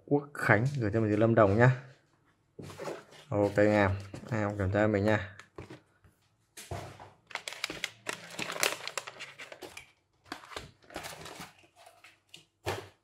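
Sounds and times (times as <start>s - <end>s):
plastic packaging crinkling: 7.2s - 12.4s.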